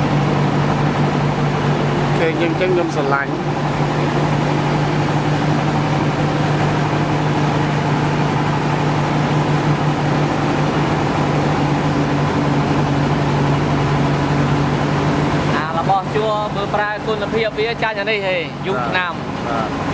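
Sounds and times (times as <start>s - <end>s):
motor humming: 0.0s - 19.9s.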